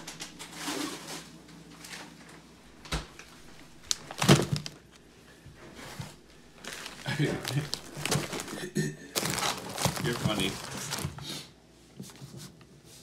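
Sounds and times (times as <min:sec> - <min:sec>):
plastic bag set down on table: 0:03.9 - 0:04.8, 0:05.9 - 0:11.2.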